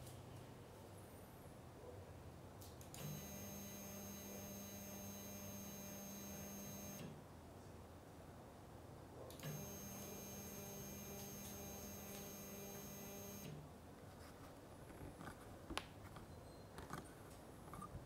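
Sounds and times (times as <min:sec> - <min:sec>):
stepper motor hum and whine: 0:03.0 - 0:07.0, 0:09.4 - 0:13.5.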